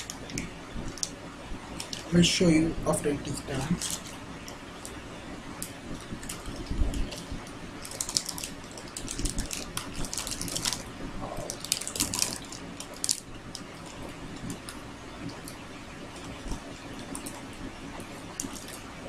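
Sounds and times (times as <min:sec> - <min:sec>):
plastic wrapper crackling: 0:00.0 - 0:02.3, 0:03.5 - 0:05.0, 0:05.6 - 0:17.4, 0:18.3 - 0:18.9.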